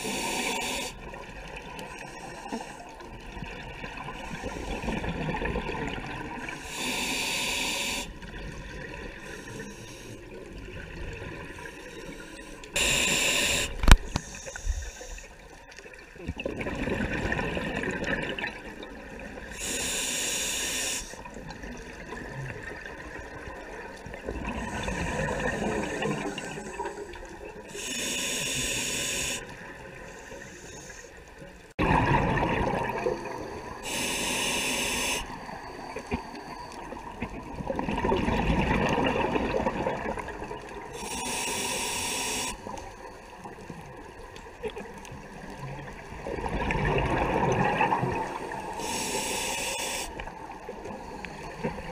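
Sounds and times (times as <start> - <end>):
regulator inhale hiss: 0.0 - 1.1, 6.6 - 8.3, 9.2 - 10.4, 11.7 - 15.5, 19.5 - 21.3, 24.7 - 31.4, 33.6 - 37.0, 40.9 - 43.3, 48.5 - 51.8
exhaled bubbles gushing: 3.1 - 6.7, 16.2 - 19.6, 21.2 - 27.6, 31.8 - 33.9, 37.0 - 41.0, 44.1 - 48.8.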